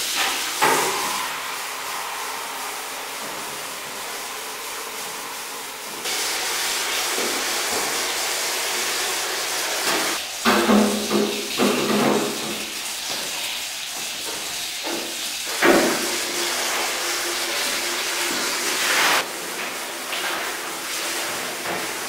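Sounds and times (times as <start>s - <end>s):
tap water running into sink: 0.0s - 22.0s.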